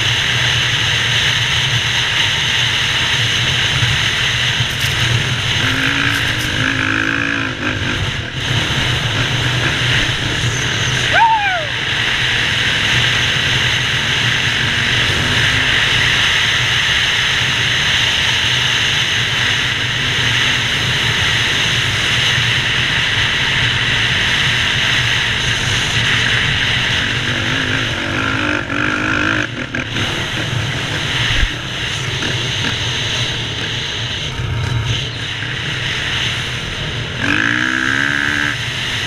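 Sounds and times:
wind rush on microphone: 0.0s - 28.2s
dirt bike engine running: 0.0s - 39.0s.

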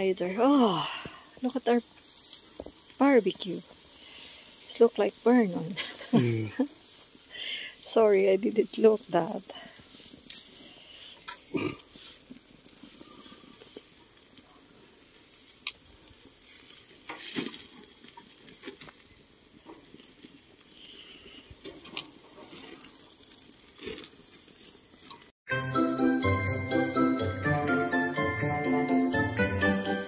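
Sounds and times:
meat sizzling on grill: 0.0s - 25.4s
jingly music: 25.5s - 30.0s.

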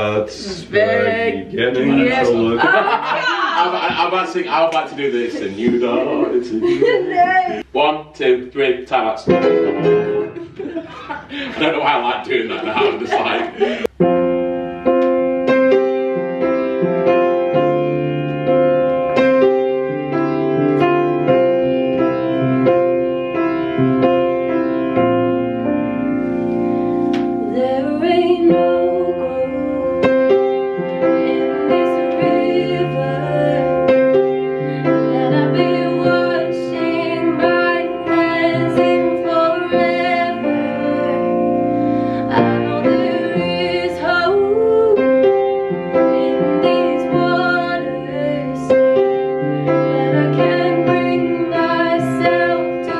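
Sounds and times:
upright piano playing: 0.0s - 52.9s
woman singing: 0.5s - 3.6s, 27.4s - 30.4s, 31.0s - 52.9s.

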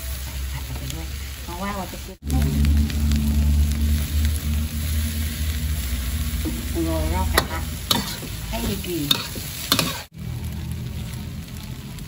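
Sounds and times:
food sizzling in wok: 0.0s - 12.0s
metal spatula scraping wok: 2.3s - 10.1s.

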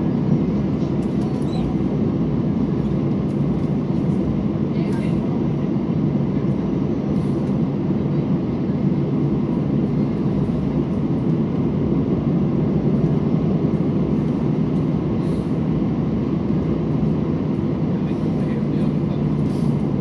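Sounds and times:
airplane cabin rumble while taxiing: 0.0s - 20.0s.

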